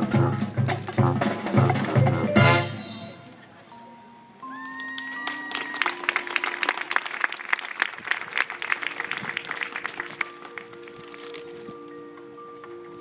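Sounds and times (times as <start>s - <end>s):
held brass chord: 0.0s - 3.4s.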